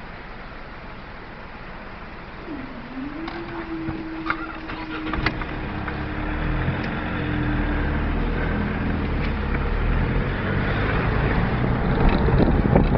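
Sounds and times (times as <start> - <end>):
car engine: 0.0 - 12.9
road noise: 0.0 - 12.9.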